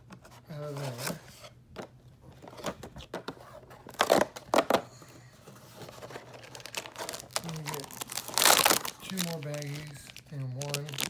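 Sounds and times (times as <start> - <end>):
plastic bags rustling: 5.8 - 11.0.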